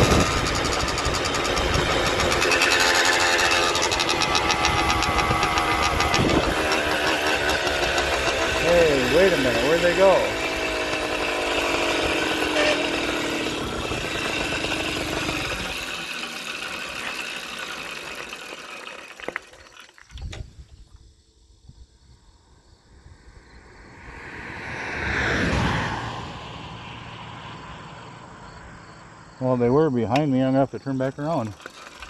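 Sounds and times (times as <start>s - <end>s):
vehicle passing: 0.0s - 15.5s, 23.0s - 30.1s
motorized bicycle engine: 0.0s - 20.4s, 30.1s - 32.0s
rushing air: 22.9s - 28.3s.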